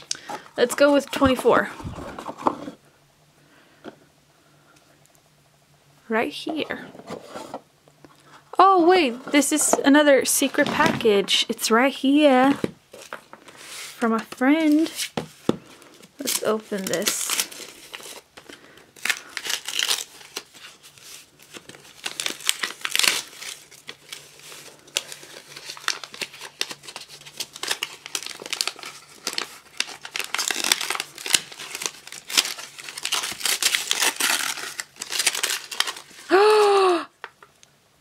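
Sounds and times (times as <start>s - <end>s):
wrapping paper tearing and crinkling: 12.4s - 37.0s.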